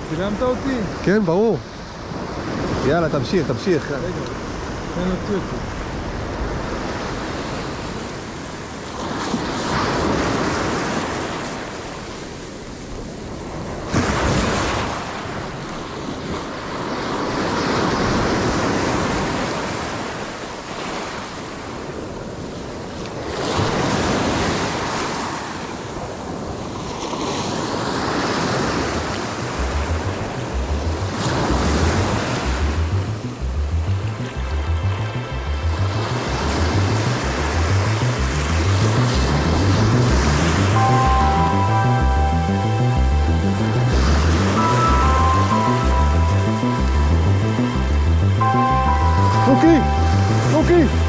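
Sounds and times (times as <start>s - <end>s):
waves breaking over rocks: 0.0s - 32.6s
background music beat: 29.4s - 51.0s.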